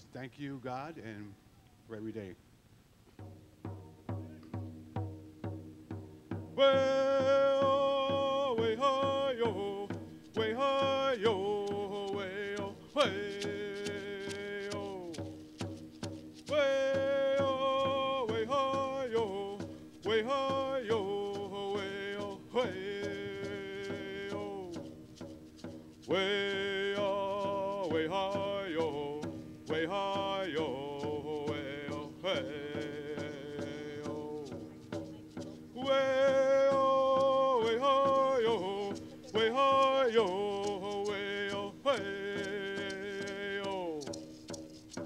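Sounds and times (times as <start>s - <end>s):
man singing unaccompanied: 5.0s - 45.0s
singer breathing: 19.6s - 20.0s.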